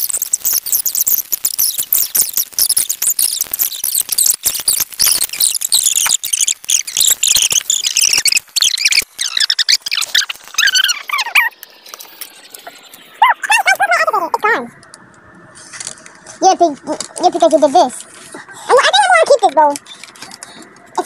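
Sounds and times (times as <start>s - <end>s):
high-pitched sped-up voices: 3.9s - 14.8s, 16.3s - 21.0s.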